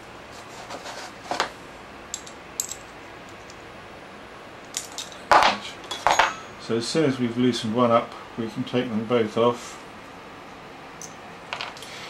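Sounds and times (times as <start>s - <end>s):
brass nuts clinking: 2.1s - 3.7s, 4.6s - 6.6s, 11.0s - 11.8s.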